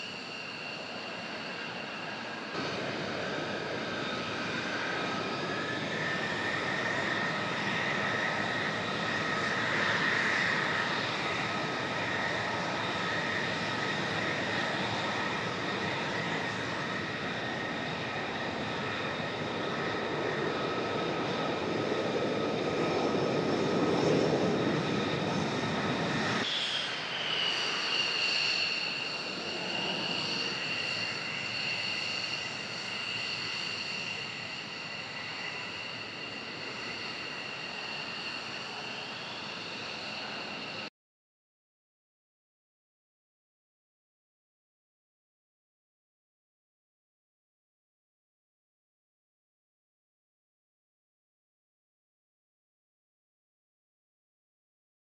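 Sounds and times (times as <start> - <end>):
jet rumble: 0.0 - 40.8
jet engines whining: 0.0 - 40.9.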